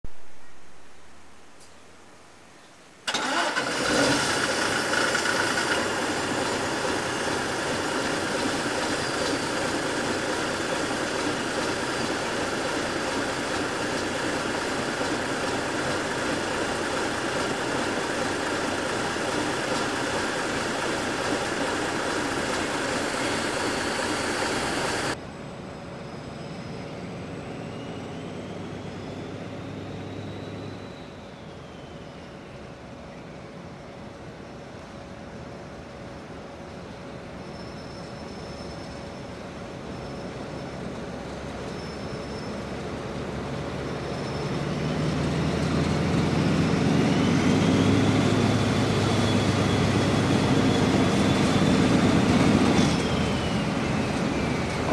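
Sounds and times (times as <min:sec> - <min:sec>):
engine running: 0:03.1 - 0:25.8, 0:26.6 - 0:31.0, 0:40.9 - 0:54.9.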